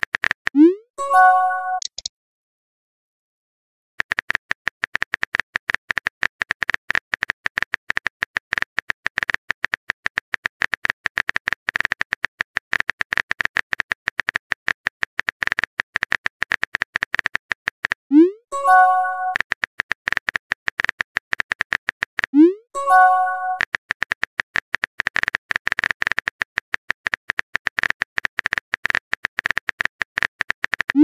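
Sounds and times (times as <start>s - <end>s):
phone keyboard typing clicks: 1.6s - 2.1s, 4.0s - 18.0s, 22.9s - 31.0s.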